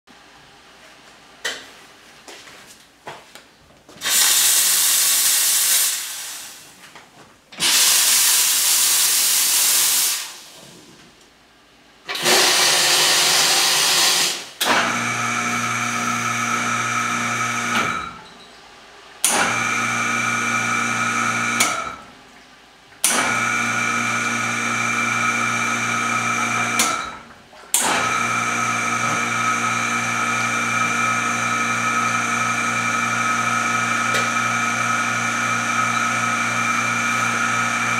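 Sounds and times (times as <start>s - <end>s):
steam wand hissing: 4.0s - 6.7s, 7.6s - 10.6s, 12.1s - 14.6s.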